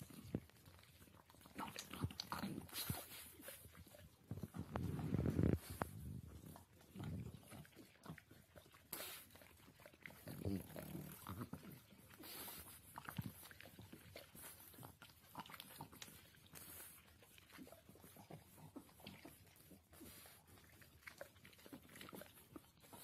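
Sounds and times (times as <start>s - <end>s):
dog licking with wet mouth smacks: 0.0s - 23.0s.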